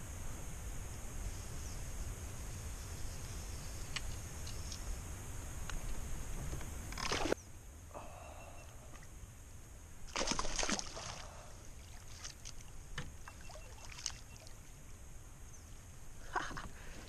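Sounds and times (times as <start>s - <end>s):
water splashing: 7.0s - 7.4s, 10.1s - 14.6s.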